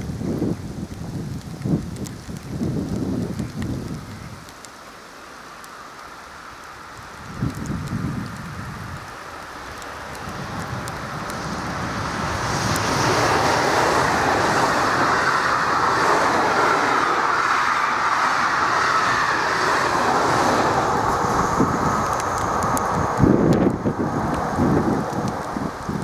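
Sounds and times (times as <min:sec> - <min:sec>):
train wheels rumbling on rails: 0:06.7 - 0:26.0.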